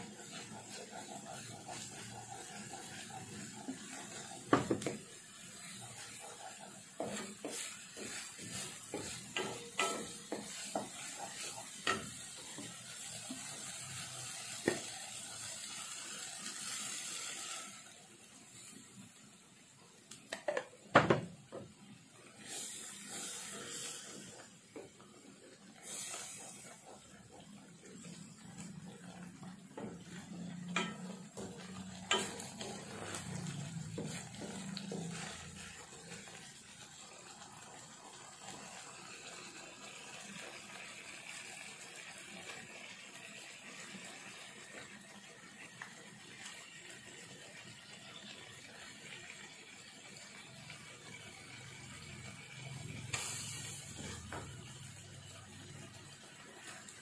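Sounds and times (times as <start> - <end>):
wooden spatula scraping a pan: 0.0 - 15.0, 27.9 - 36.6
paste sizzling in a pan: 0.0 - 57.0.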